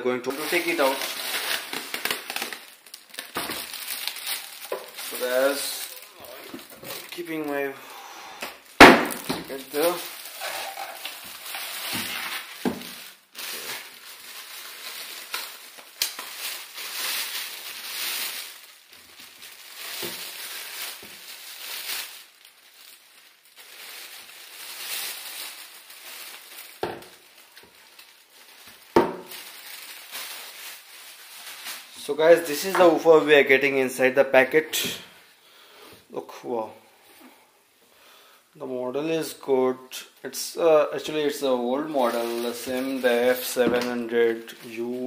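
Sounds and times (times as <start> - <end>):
plastic bag rustling and crinkling: 0.3 - 7.8, 8.6 - 33.7, 40.6 - 45.0.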